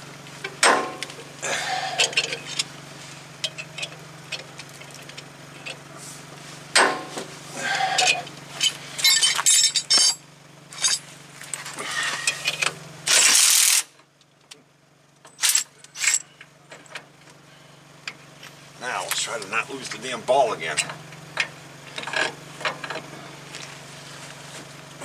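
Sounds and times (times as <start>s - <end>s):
metal tools clinking and clattering: 2.0s - 2.7s, 8.0s - 13.2s, 15.3s - 16.9s.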